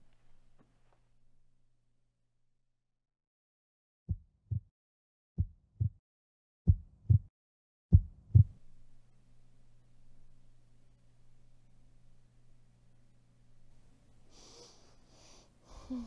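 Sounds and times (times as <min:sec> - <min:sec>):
heartbeat thumps: 0:04.1 - 0:04.7, 0:05.4 - 0:06.0, 0:06.7 - 0:07.3, 0:07.9 - 0:08.6
faint low hum: 0:07.9 - 0:16.0.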